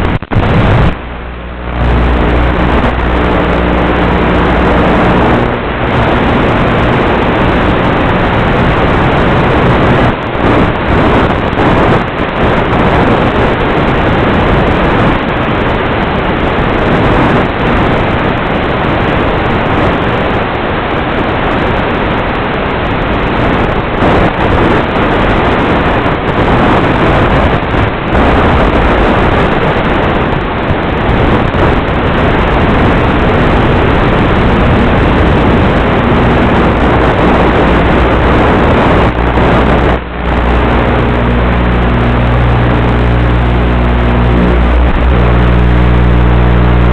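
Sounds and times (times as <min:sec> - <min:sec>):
electric motor whine: 0:00.0 - 0:11.2, 0:36.4 - 0:46.9
wind rushing: 0:00.0 - 0:15.6, 0:24.0 - 0:46.9.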